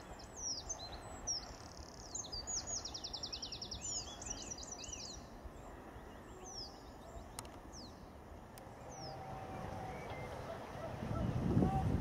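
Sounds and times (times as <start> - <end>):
songbird trilling and chirping: 0.0 - 11.3
low outdoor rumble: 5.1 - 12.0.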